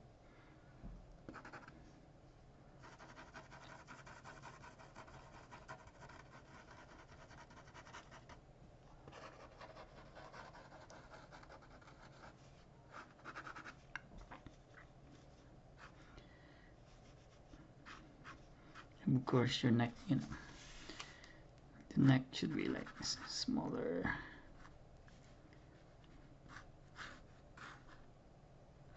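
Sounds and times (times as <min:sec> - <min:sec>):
pen scratching on paper: 0:01.3 - 0:01.7, 0:02.8 - 0:08.3, 0:09.1 - 0:13.8, 0:26.5 - 0:28.0.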